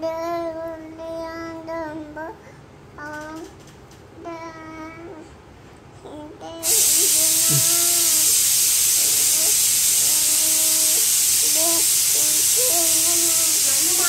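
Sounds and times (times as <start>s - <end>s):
toddler babbling: 4.2s - 5.3s
pressure cooker hissing steam: 6.6s - 14.0s.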